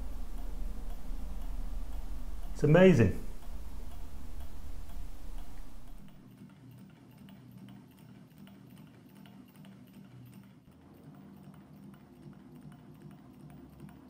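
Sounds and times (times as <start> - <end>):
low rumble: 0.0 - 6.2
small engine ticking softly: 0.0 - 14.0.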